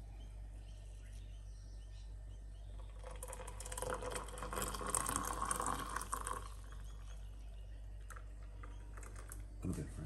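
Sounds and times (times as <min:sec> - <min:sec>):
coffee pouring into a mug: 0:02.8 - 0:07.3, 0:08.0 - 0:09.8.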